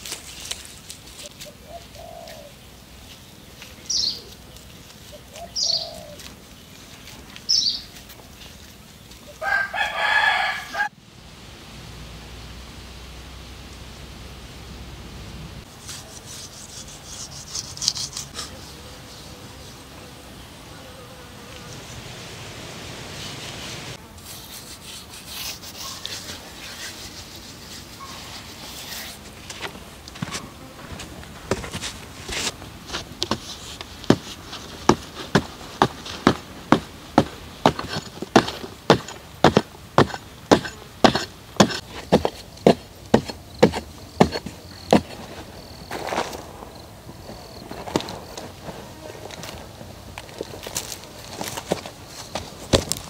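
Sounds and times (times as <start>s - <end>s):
insects buzzing: 0.0s - 53.0s
hands rubbing wet clay: 24.2s - 29.2s.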